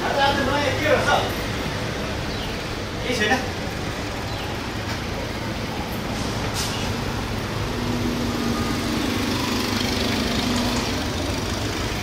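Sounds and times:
steady engine noise: 0.0 - 12.0.

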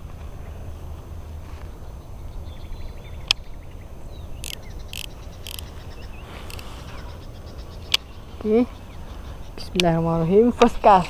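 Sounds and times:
sharp click: 4.4 - 5.7.

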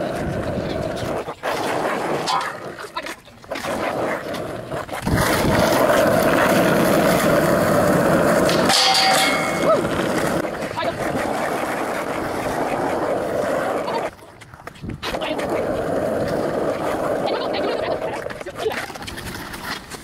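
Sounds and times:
skateboard sliding on metal bar: 0.0 - 15.4
skateboard wheels rolling on asphalt: 0.0 - 20.0
skateboard landing clack: 8.4 - 10.2.

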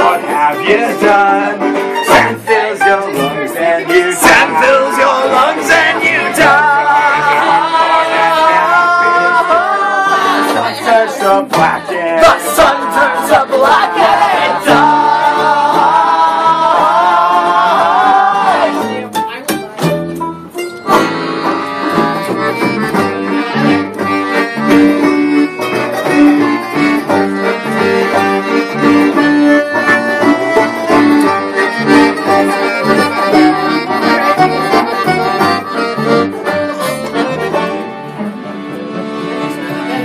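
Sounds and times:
accordion melody: 0.0 - 40.0
live band playing: 0.0 - 40.0.

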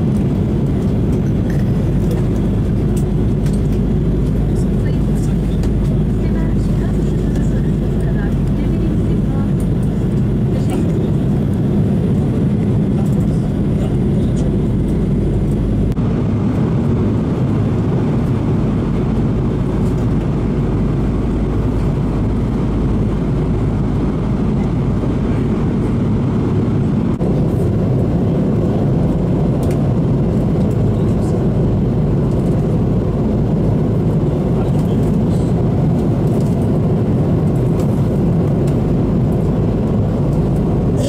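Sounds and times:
jet airliner cabin roar: 0.0 - 41.0.

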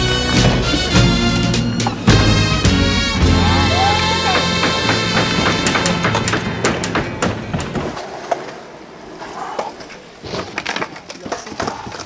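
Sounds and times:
music track: 0.0 - 7.6
skateboard wheels rolling on concrete: 6.4 - 12.0
skateboard deck clacking on ground: 9.5 - 12.0.

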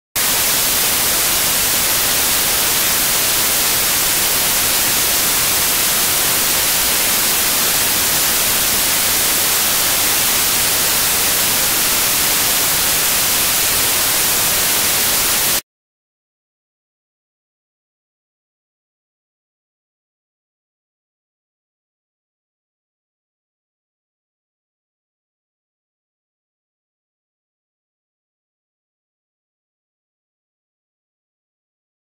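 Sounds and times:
static hiss: 0.2 - 15.6.

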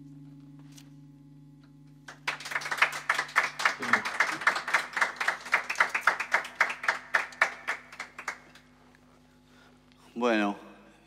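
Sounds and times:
faint steady hum: 0.0 - 11.0
people clapping: 2.0 - 8.8.

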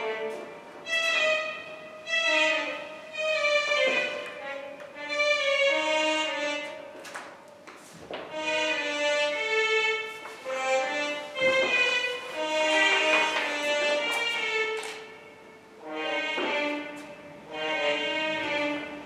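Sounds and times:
violin slow melody: 0.0 - 19.0.

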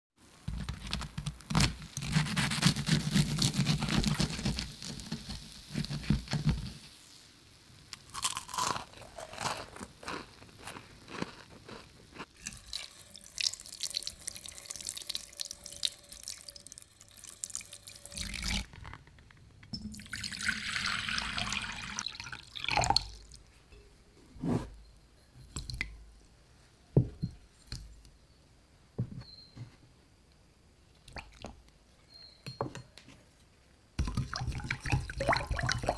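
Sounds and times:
fried chicken crust crunching: 8.0 - 12.7.

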